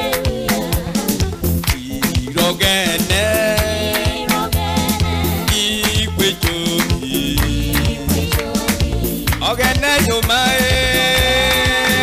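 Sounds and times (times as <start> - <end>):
bass: 0.0 - 12.0
drum beat: 0.0 - 12.0
lead voice singing: 0.0 - 12.0.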